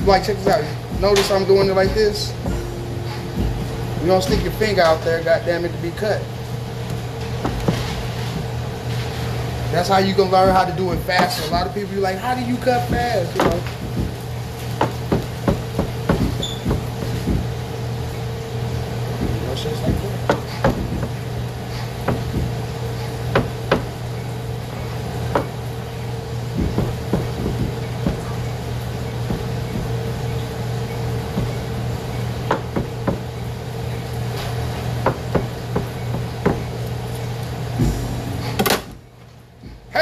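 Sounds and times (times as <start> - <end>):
kitchen equipment hum: 0.0 - 40.0
knife chopping on plastic board: 12.6 - 17.6, 19.2 - 24.0, 25.3 - 25.6, 26.5 - 30.4, 31.3 - 33.3, 34.4 - 36.7.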